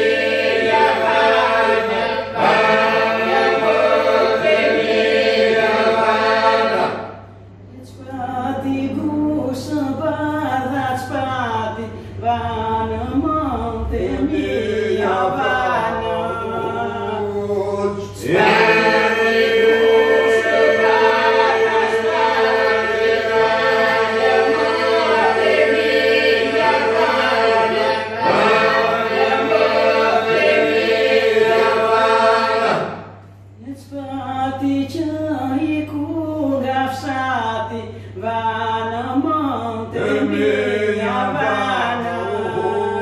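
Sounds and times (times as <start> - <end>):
group singing with drone: 0.0 - 43.0
woman singing: 33.6 - 40.0.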